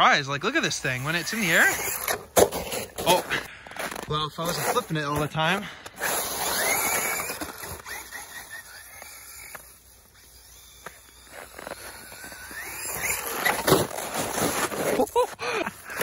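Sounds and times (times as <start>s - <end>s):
tyres driving through snow: 0.0s - 16.0s
rc truck motor whine: 0.7s - 3.0s, 5.9s - 14.8s.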